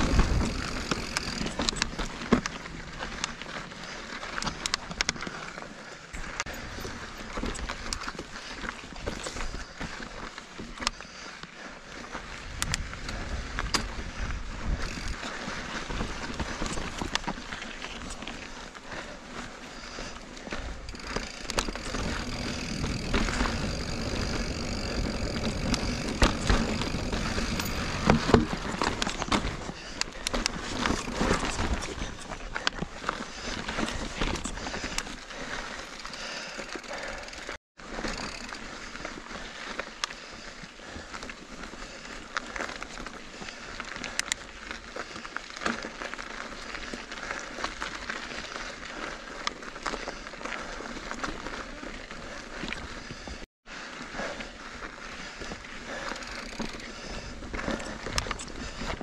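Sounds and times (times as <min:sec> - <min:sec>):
bike clicks and rattles: 0:00.0 - 0:59.0
bike knocking over bumps: 0:21.0 - 0:31.8.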